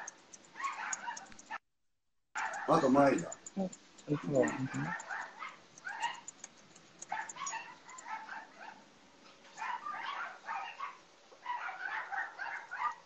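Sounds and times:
dogs yipping and whining: 0.0s - 1.6s, 4.1s - 6.3s, 7.0s - 8.8s.

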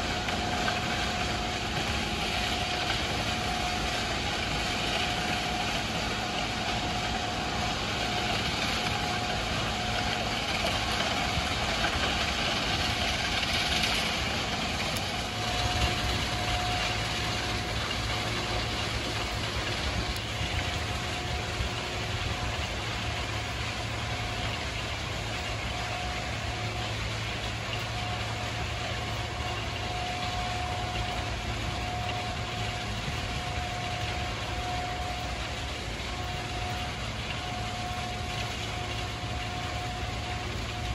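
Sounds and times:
diesel engine running: 0.0s - 40.9s
thin steady whine: 0.0s - 40.9s.

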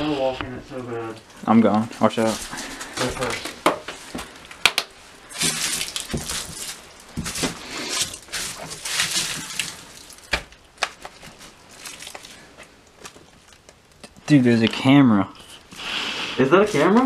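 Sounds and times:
footsteps on debris-strewn wooden floor: 5.3s - 14.3s.

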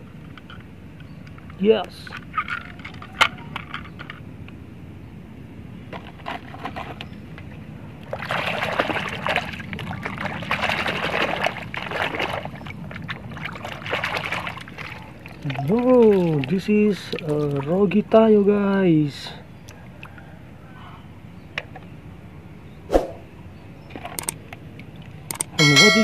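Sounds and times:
water sloshing and splashing: 6.0s - 17.9s.

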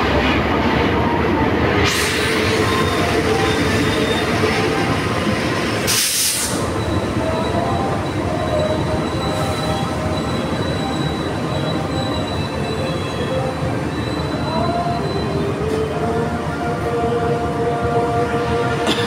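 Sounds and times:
train mechanical drone: 0.0s - 19.0s
air hiss: 5.9s - 6.7s.

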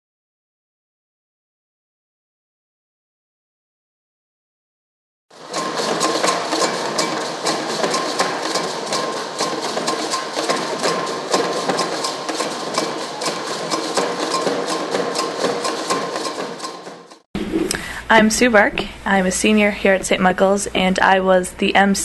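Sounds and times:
hand drums playing fast rhythm: 5.4s - 17.2s.

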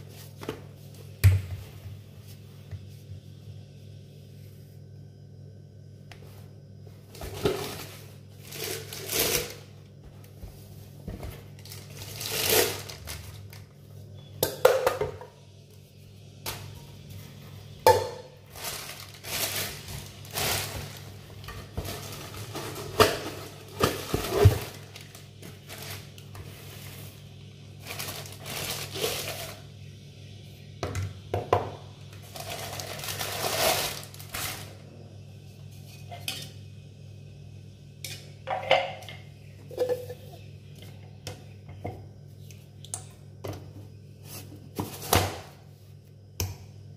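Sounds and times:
low steady hum: 0.0s - 46.9s
plastic wrapping rustling: 7.4s - 9.7s, 11.4s - 13.8s, 18.4s - 27.2s, 27.8s - 29.6s, 32.2s - 34.8s.

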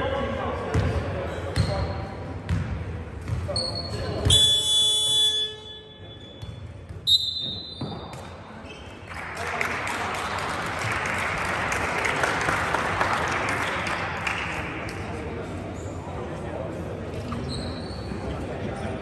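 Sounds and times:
crowd clapping: 9.1s - 15.2s.

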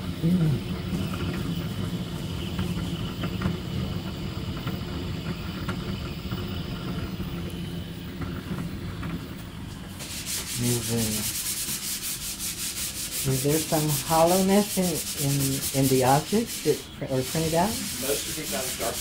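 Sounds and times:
printer motors and fan humming: 0.0s - 19.0s
rubbing noise: 10.0s - 19.0s.

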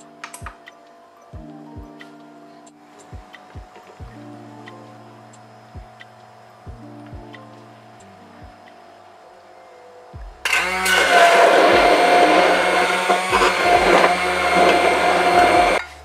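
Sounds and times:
stick blender motor whine: 10.5s - 15.9s.

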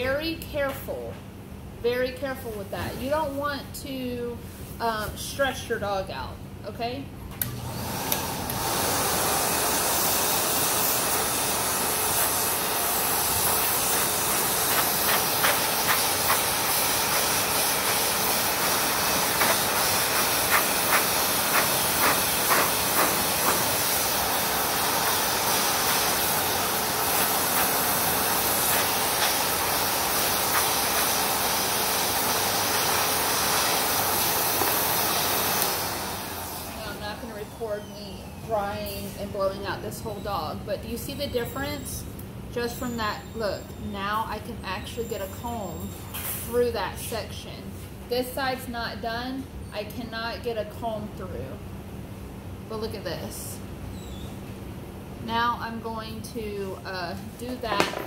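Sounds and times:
pet dryer blowing air: 7.4s - 38.7s.

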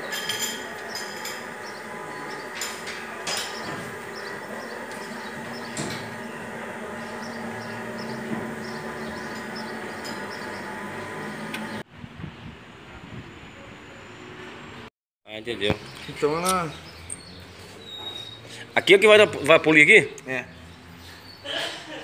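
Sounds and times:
car engine running with a whine: 0.0s - 14.8s.

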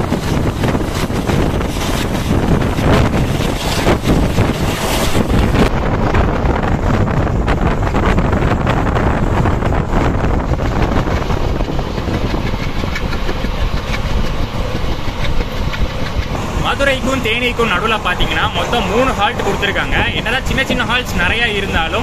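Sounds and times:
wind hiss on microphone: 0.0s - 12.9s
diesel train engine: 0.0s - 22.0s
wheels clattering on rails: 0.0s - 22.0s.

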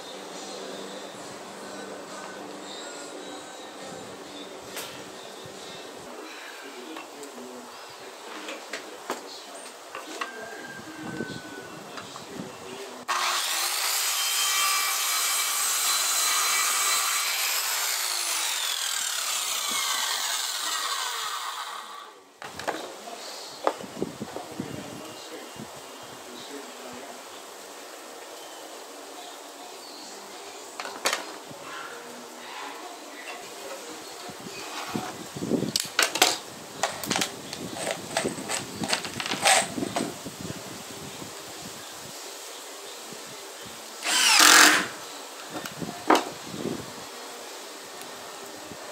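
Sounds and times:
circular saw cutting wood: 13.0s - 22.3s, 36.9s - 40.1s, 44.0s - 45.1s
saw blade winding down: 13.1s - 22.2s, 36.9s - 39.7s, 44.0s - 45.0s
screws rattling out of plastic bottle: 36.8s - 40.1s.

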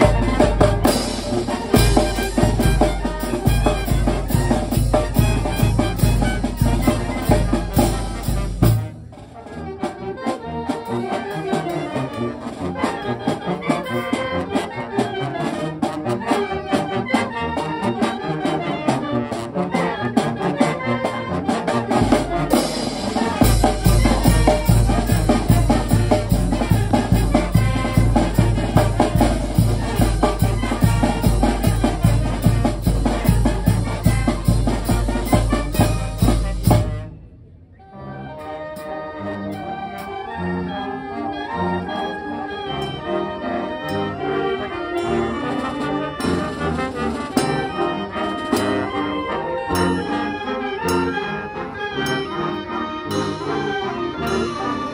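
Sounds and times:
bass drum and cymbals: 0.0s - 9.0s, 22.0s - 37.1s
trumpets and clarinets: 0.0s - 54.9s.

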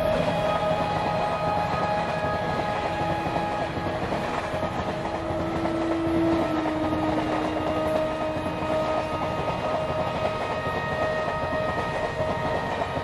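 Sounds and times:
train wheels running on rails: 0.0s - 13.0s.

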